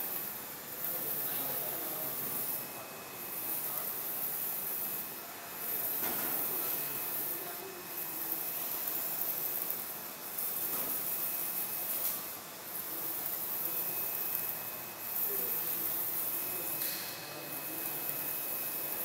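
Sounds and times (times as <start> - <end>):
printer machine hiss: 0.0 - 19.0.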